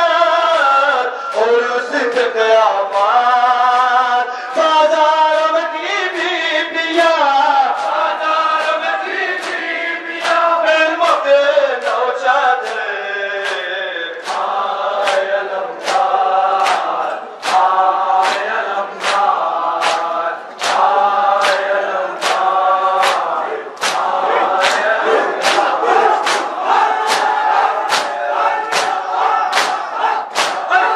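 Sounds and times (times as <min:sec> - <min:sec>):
men chanting a lament: 0:00.0 - 0:30.9
hand slaps on bare chests: 0:12.6 - 0:30.7.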